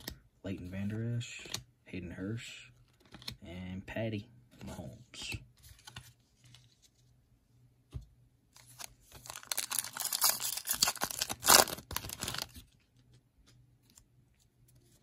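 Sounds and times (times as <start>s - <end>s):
foil wrapper tearing and crinkling: 8.8s - 12.6s.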